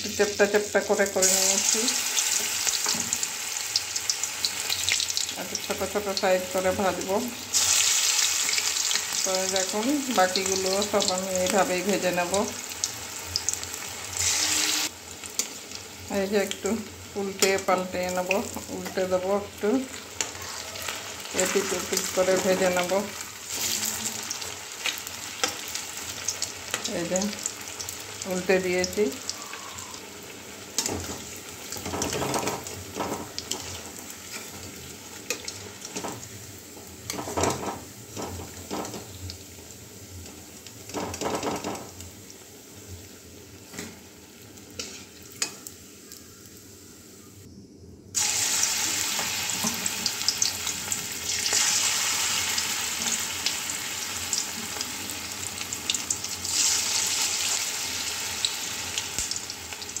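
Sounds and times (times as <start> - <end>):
fritters sizzling in oil: 0.0 - 47.5, 48.2 - 60.0
metal spatula scraping wok: 14.2 - 14.9.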